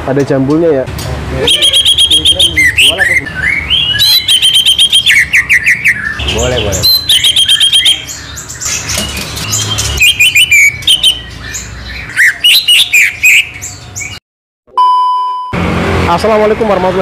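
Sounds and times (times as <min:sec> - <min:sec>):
bird singing chirps and trills: 0:01.4 - 0:14.2
small birds chirping: 0:01.4 - 0:14.2
test-tone beep: 0:14.7 - 0:15.6.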